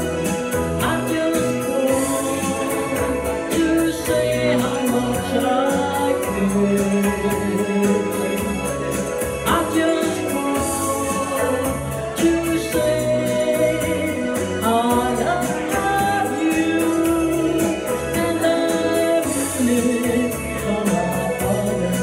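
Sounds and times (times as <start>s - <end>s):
instrumental accompaniment with beat: 0.0s - 22.0s
person singing into a microphone: 0.0s - 22.0s.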